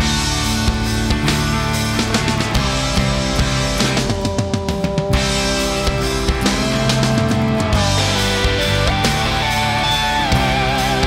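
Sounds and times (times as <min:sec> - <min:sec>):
rock music with guitar: 0:00.0 - 0:11.0.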